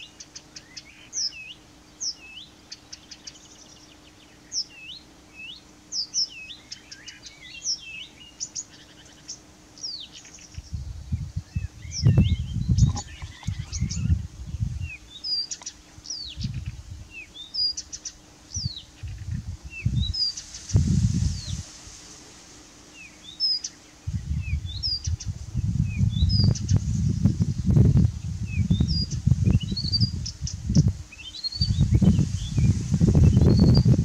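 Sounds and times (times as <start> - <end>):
bird singing whistled notes: 0.0 - 21.6, 22.9 - 27.3, 28.4 - 34.0
wind on microphone: 10.6 - 15.1, 16.0 - 17.2, 18.5 - 22.4, 24.0 - 34.0
dry clicking bird notes: 15.2 - 16.2.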